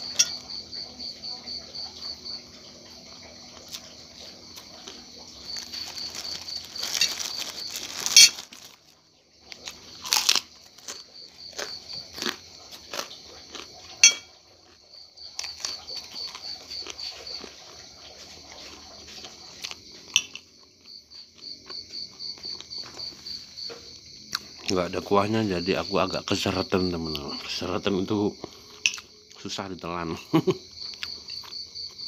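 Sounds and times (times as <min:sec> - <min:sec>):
spoon scraping ceramic plate: 0:00.0 - 0:00.5, 0:14.0 - 0:14.3
crickets chirping: 0:00.0 - 0:32.0
spoon clinking on plate: 0:00.1 - 0:00.5, 0:14.0 - 0:14.3
rustling: 0:04.9 - 0:09.0
mouth eating sounds: 0:09.5 - 0:14.0.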